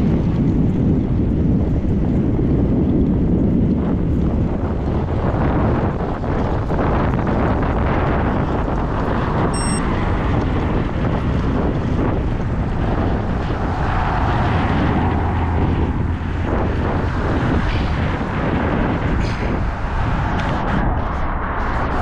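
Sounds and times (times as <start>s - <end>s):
wind buffeting microphone: 0.0s - 22.0s
short high-pitched ring: 9.6s - 9.8s.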